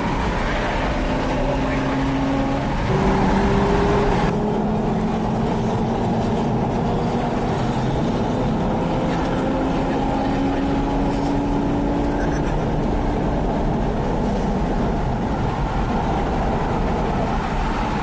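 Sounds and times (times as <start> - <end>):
sports car engine revving: 0.9 - 12.8.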